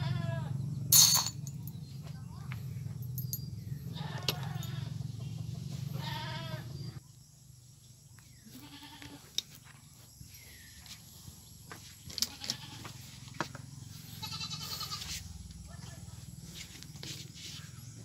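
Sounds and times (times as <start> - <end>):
goat bleating: 0.0 - 0.6, 4.0 - 5.0, 6.0 - 6.7, 8.5 - 9.3, 12.3 - 12.9, 14.2 - 15.2
pliers and glass jar clinking: 0.9 - 1.8, 3.0 - 3.6.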